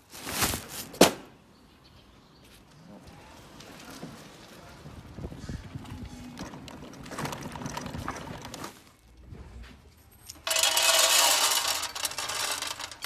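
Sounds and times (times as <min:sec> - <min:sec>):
pellets clinking: 0:10.4 - 0:13.0
pellets rattling into metal feeder: 0:10.4 - 0:13.0.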